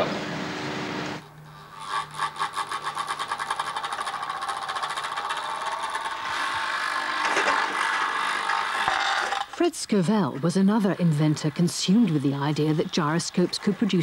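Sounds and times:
motor device quickening whirr: 1.2s - 9.6s.

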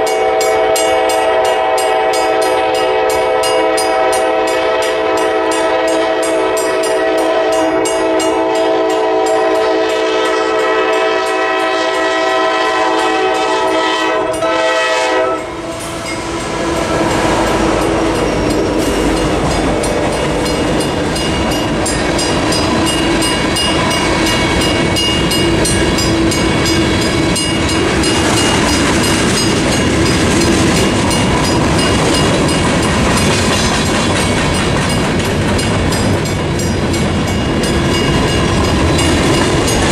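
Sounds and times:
locomotive air horn: 0.0s - 19.9s
crossing bell ringing: 0.0s - 39.9s
train cars clattering: 0.0s - 39.9s
train wheels on rails: 0.0s - 39.9s.

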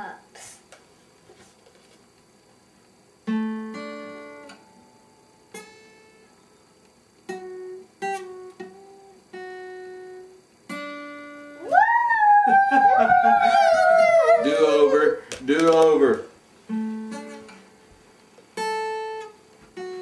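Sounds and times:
acoustic guitar: 3.2s - 6.4s, 7.2s - 20.0s.

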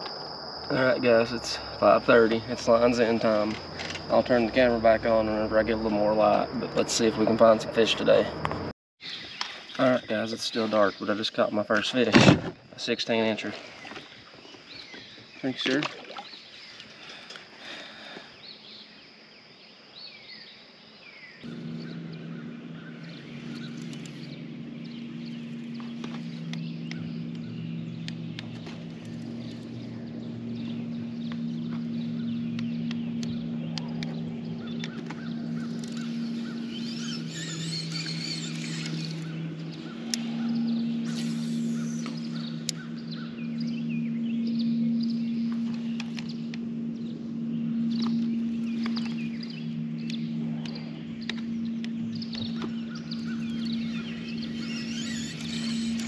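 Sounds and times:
steady low hum: 0.0s - 8.7s, 21.3s - 56.0s
birds chirping: 0.0s - 56.0s.

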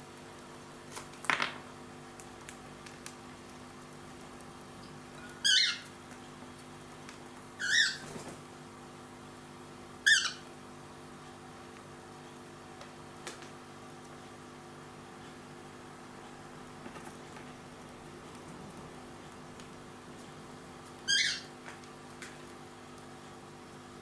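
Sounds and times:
cockatiel high chirps: 5.4s - 5.9s, 7.6s - 8.1s, 10.0s - 10.4s, 21.0s - 21.5s
cockatiel falling call: 21.1s - 21.5s.

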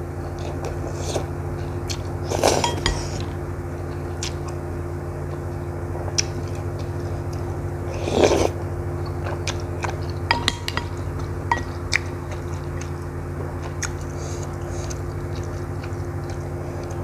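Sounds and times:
steady low hum: 0.0s - 17.0s
chewing noodles: 6.1s - 17.0s
chopsticks clicking on ceramic bowl: 10.3s - 11.8s.

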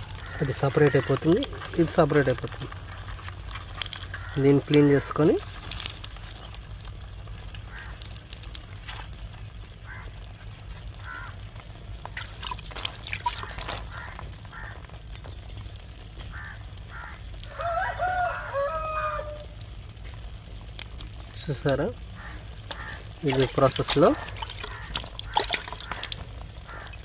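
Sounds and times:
water pouring and splashing: 0.0s - 16.2s, 19.8s - 27.0s
chicken calling: 16.3s - 19.6s, 24.0s - 27.0s.

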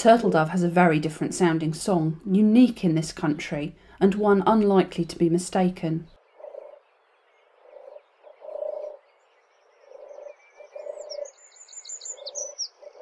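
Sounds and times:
small birds singing: 4.8s - 13.0s
turtle dove purring: 6.1s - 6.8s, 7.6s - 9.0s, 9.8s - 11.3s, 12.1s - 13.0s.

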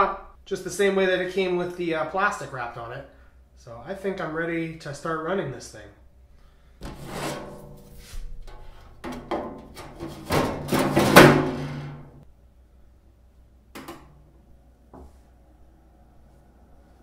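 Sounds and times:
sheet metal panel scraping and clunking: 6.8s - 12.2s.

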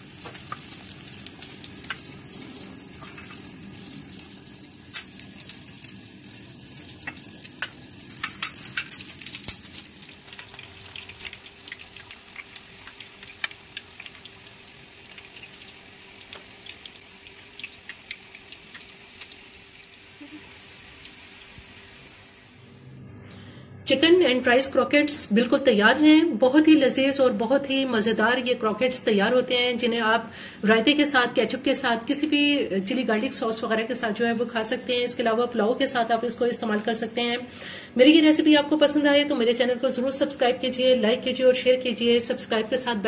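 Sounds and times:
oil sizzling and popping: 0.0s - 22.6s.

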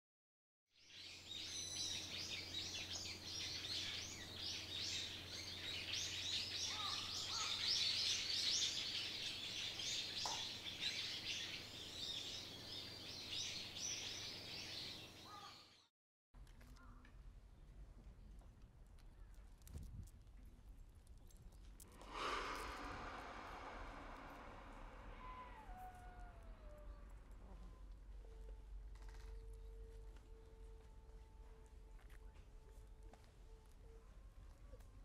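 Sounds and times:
birds chirping in chorus: 0.9s - 15.8s
lower bird calls: 1.4s - 15.7s, 22.0s - 28.4s
low steady hum: 21.9s - 34.7s.

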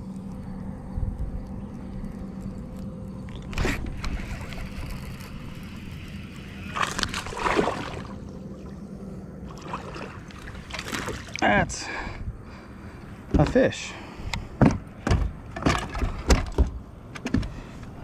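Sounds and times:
water sloshing: 6.5s - 11.5s.

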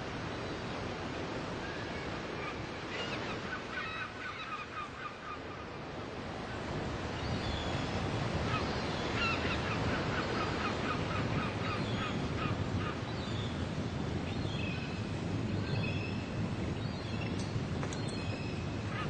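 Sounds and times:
wind noise: 5.8s - 19.0s.

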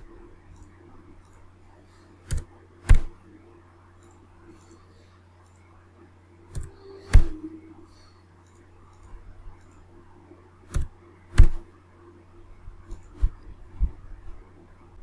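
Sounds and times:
faint electrical hum: 0.0s - 15.0s
mouse and keyboard clicks: 2.2s - 3.2s, 6.5s - 7.4s, 10.7s - 11.6s.

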